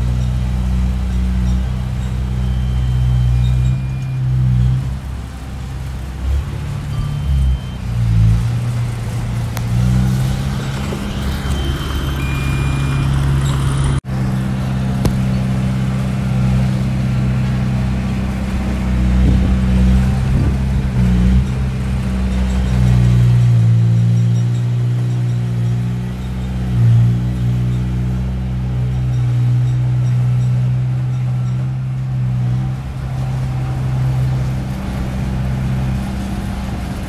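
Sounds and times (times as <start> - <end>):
heavy diesel engines rumbling: 0.0 - 37.0.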